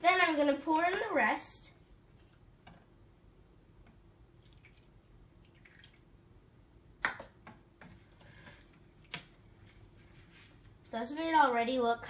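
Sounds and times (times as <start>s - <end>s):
liquid dripping and stirring: 3.9s - 6.1s.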